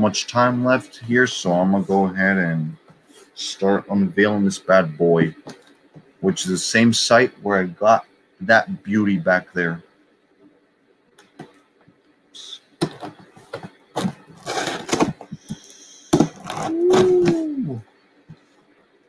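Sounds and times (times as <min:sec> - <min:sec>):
cardboard box knocks and scrapes: 0:12.8 - 0:15.4, 0:16.2 - 0:16.6
cardboard tearing rasp: 0:14.0 - 0:15.4, 0:16.1 - 0:17.5.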